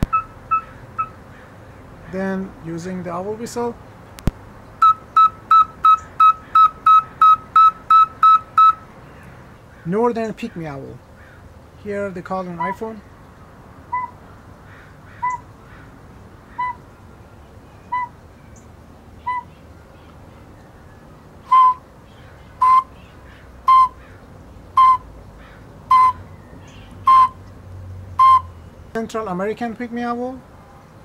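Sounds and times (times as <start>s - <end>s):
owl call from a phone: 0.0s - 1.2s, 4.8s - 8.8s, 13.9s - 14.2s, 15.2s - 15.4s, 16.6s - 16.8s, 17.9s - 18.2s, 19.2s - 19.5s, 21.5s - 21.8s, 22.6s - 23.0s, 23.6s - 24.0s, 24.8s - 25.0s, 25.9s - 26.2s
ceramic owl whistle toots: 13.9s - 14.2s, 16.6s - 16.8s, 17.9s - 18.2s, 19.3s - 19.5s, 21.5s - 21.8s, 22.6s - 22.9s, 23.7s - 24.0s, 24.8s - 25.0s, 25.9s - 26.2s, 27.0s - 27.4s, 28.2s - 28.5s.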